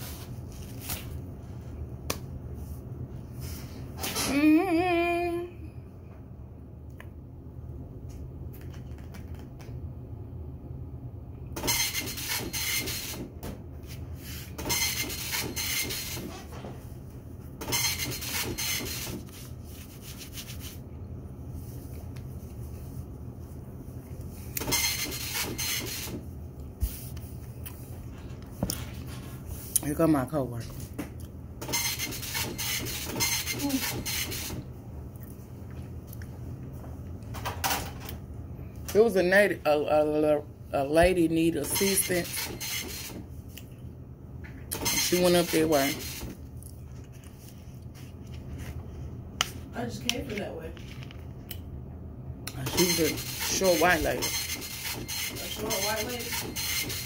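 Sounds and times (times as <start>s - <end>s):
steady low hum: 0.0s - 57.0s
printer rasping strokes: 11.6s - 13.3s, 14.5s - 16.3s, 17.6s - 19.3s, 24.6s - 26.2s, 31.6s - 34.6s, 41.7s - 43.2s, 44.8s - 46.3s, 52.6s - 57.0s.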